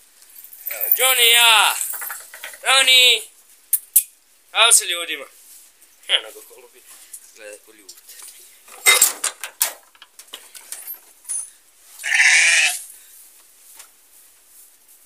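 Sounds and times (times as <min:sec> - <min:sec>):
sharp knocks and rattles: 0:08.7 - 0:11.5
sheep bleating: 0:12.0 - 0:12.8.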